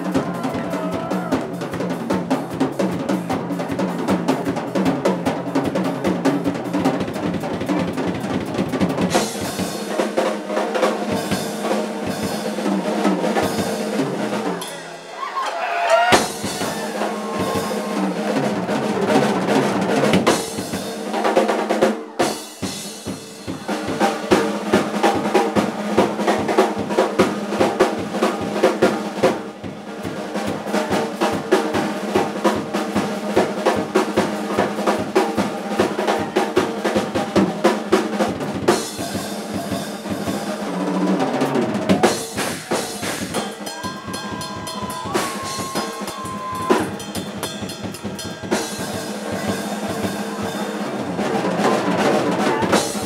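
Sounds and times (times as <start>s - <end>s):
drum kit playing: 0.0s - 53.0s.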